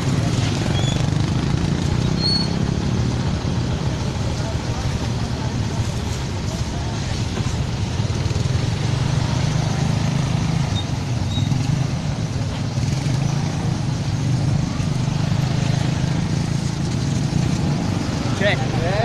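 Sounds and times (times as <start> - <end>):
road noise: 0.0 - 19.0
vehicle engine hum: 0.0 - 19.0.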